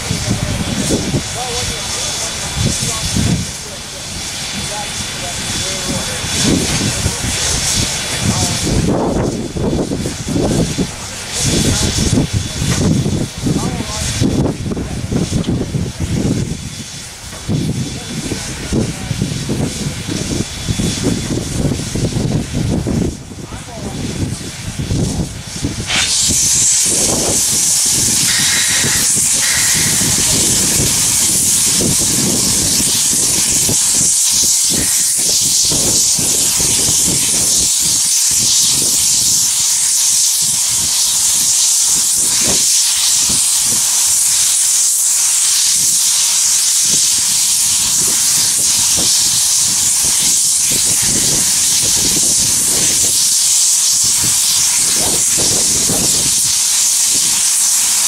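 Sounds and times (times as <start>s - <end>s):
loud steam hiss: 0.0s - 58.0s.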